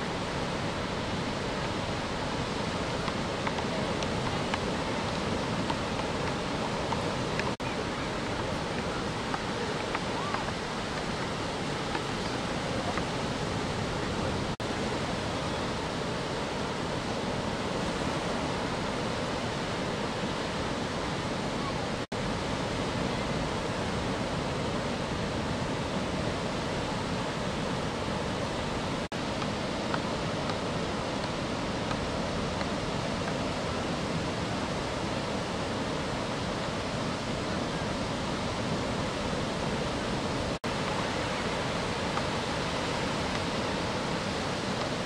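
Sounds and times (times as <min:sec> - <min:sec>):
ocean surf breaking: 0:00.0 - 0:45.0.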